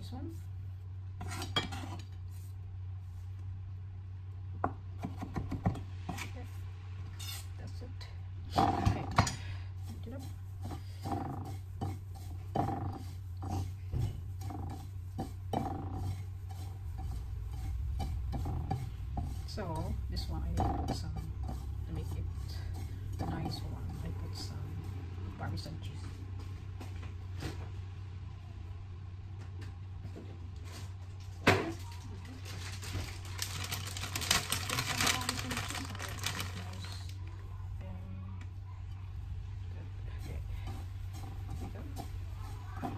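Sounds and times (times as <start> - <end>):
steady low hum: 0.0 - 42.9
fingers mixing breadcrumbs on plate: 9.8 - 25.7, 39.9 - 42.9
plastic packet crinkling: 31.9 - 37.2.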